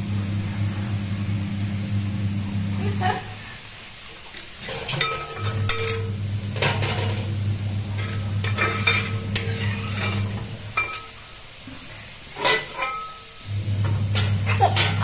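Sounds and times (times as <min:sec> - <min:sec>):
metal ladle scraping a steel pot: 0:08.0 - 0:11.0.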